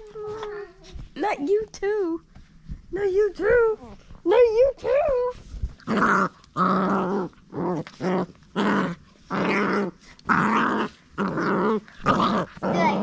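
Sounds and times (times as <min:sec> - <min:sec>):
puppy growling: 0:05.8 - 0:13.0.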